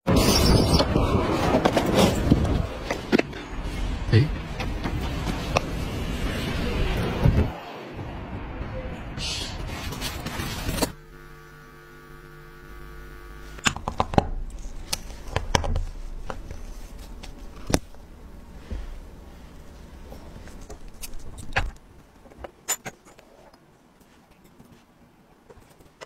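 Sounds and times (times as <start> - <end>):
steady noisy hiss: 9.2 - 26.0
faint steady hum: 10.5 - 26.0.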